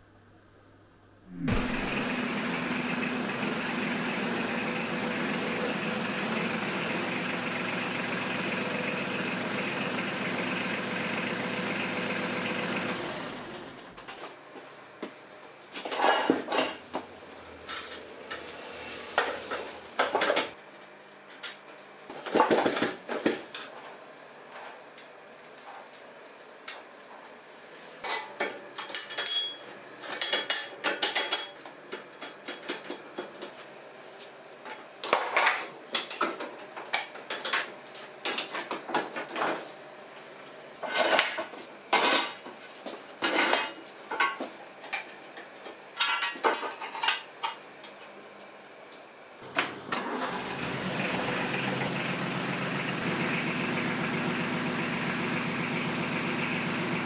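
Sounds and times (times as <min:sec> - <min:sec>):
low steady hum: 0:00.0 - 0:02.2.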